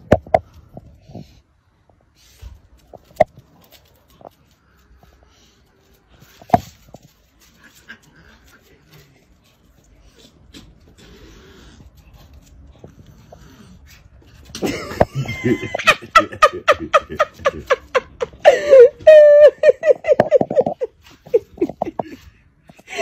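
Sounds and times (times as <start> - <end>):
person laughing hard: 14.6 - 23.0.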